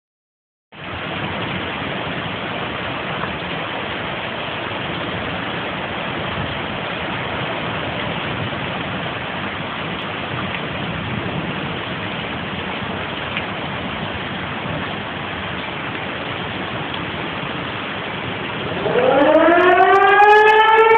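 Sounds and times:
heavy rain hissing: 0:00.8 - 0:20.9.

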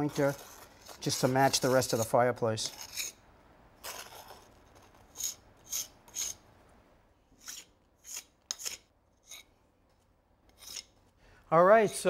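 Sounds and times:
jointer scraping mortar: 0:00.0 - 0:03.2.

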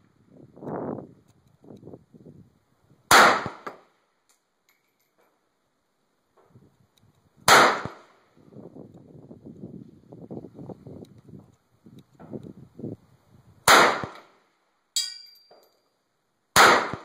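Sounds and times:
rifle shots: 0:03.1 - 0:03.7, 0:07.5 - 0:08.0, 0:13.7 - 0:14.2, 0:16.6 - 0:17.0.

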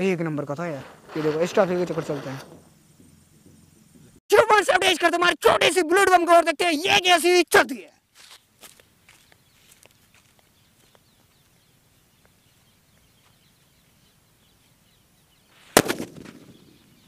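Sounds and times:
firecracker bang: 0:00.6 - 0:03.2, 0:15.7 - 0:16.8
footsteps on dirt: 0:08.0 - 0:13.9.

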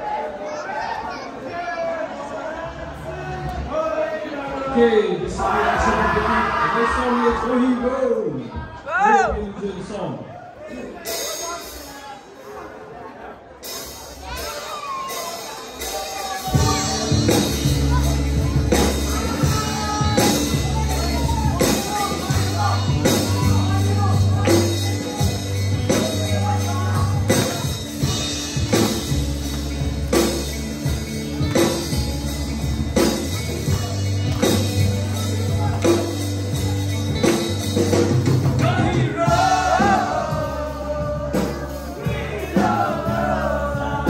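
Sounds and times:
audience singing and shouting: 0:00.0 - 0:44.0
live rock band playing: 0:11.0 - 0:12.8, 0:13.6 - 0:44.0
male lead singer: 0:16.1 - 0:28.3, 0:38.4 - 0:44.0.

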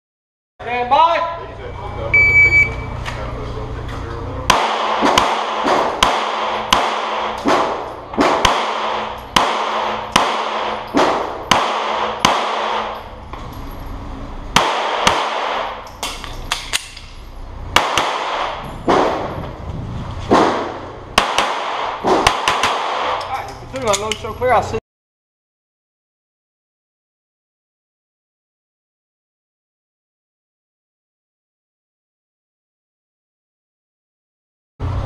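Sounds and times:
rapid pistol shots echoing indoors: 0:04.5 - 0:13.1, 0:14.5 - 0:17.1, 0:17.7 - 0:19.3, 0:20.3 - 0:23.3.

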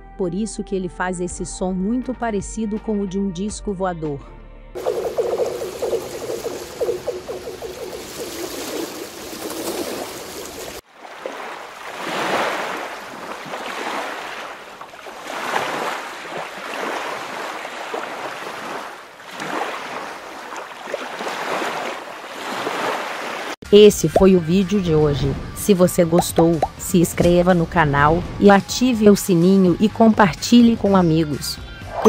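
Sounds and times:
waves lapping at shore: 0:04.8 - 0:23.6.

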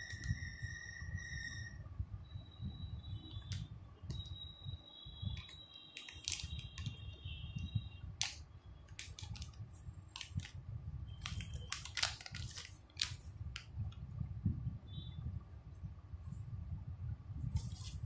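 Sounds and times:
plastic bag crinkling: 0:06.0 - 0:07.0, 0:08.2 - 0:09.6, 0:10.2 - 0:10.5, 0:11.2 - 0:13.3.

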